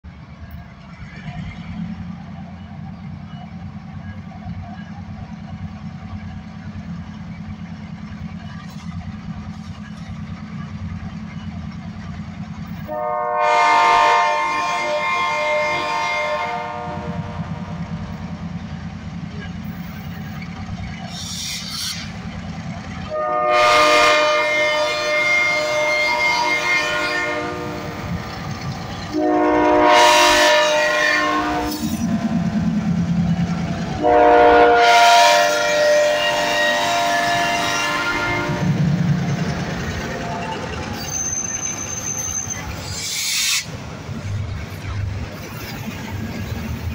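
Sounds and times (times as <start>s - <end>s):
diesel locomotive engine rumbling: 0.0s - 46.9s
locomotive air horn blasts: 12.9s - 17.8s, 23.1s - 28.0s, 29.1s - 32.2s, 34.0s - 38.9s.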